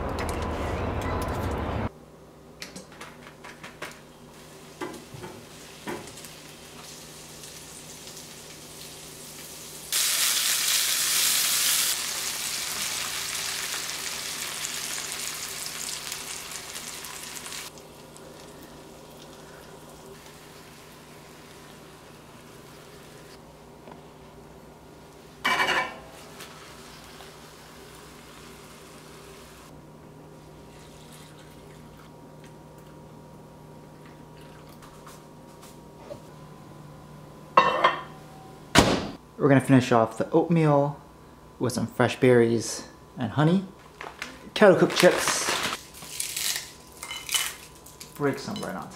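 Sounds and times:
eggs sizzling in hot pan: 0:04.4 - 0:23.4, 0:26.2 - 0:29.7.

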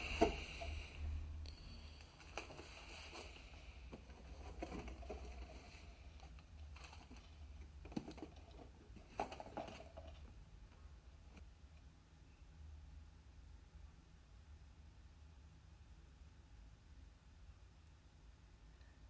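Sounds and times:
cardboard box handling: 0:02.2 - 0:10.2.

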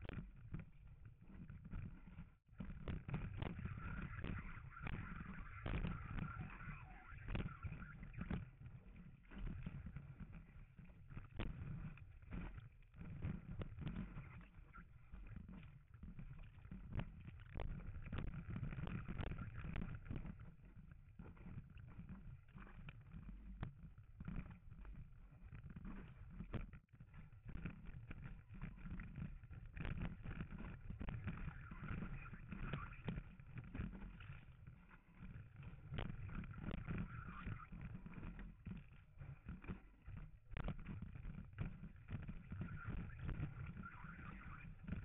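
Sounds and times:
muffled water and wind rush: 0:02.6 - 0:21.8.

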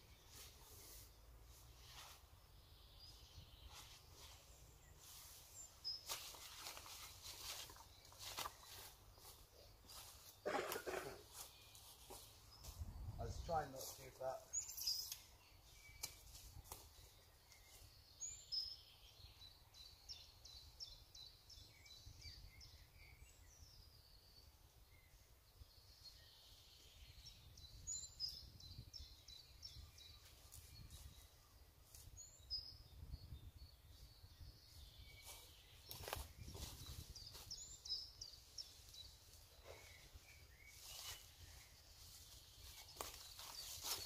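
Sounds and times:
rustle: 0:00.0 - 0:12.8, 0:34.8 - 0:44.0.

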